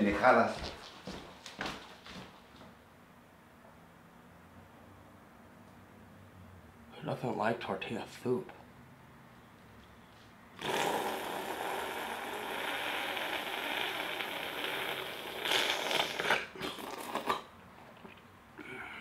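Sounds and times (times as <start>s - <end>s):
crackly eating noise: 10.6s - 18.7s.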